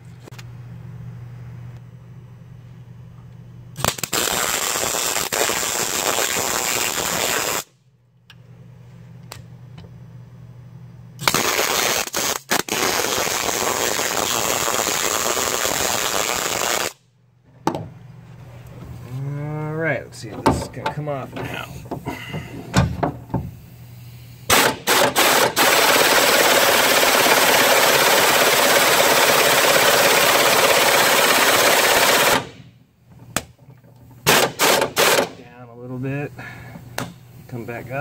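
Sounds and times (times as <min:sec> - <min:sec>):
low steady hum: 0:00.0 - 0:04.0, 0:07.7 - 0:11.3, 0:17.0 - 0:24.9, 0:32.3 - 0:38.0
arc welder crackling: 0:03.7 - 0:07.8, 0:11.2 - 0:17.0, 0:23.5 - 0:36.1.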